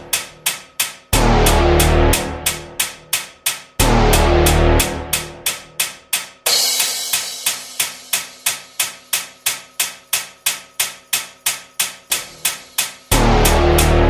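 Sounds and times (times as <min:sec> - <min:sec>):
percussive beat of sharp strikes: 0:00.0 - 0:08.9, 0:12.1 - 0:14.0
deep bass note: 0:01.2 - 0:02.8, 0:03.8 - 0:05.4, 0:13.1 - 0:14.0
cymbal crash: 0:06.5 - 0:08.5.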